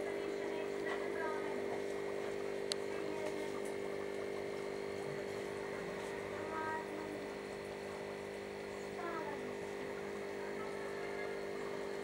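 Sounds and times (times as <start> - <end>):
aquarium pump hum: 0.0 - 12.0.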